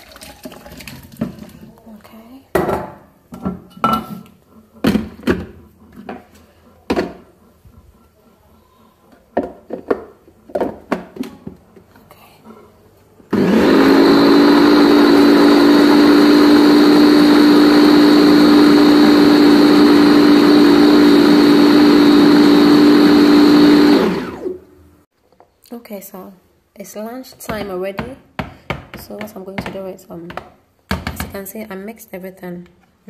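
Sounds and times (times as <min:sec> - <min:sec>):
electric blender running: 0:13.3 - 0:24.7.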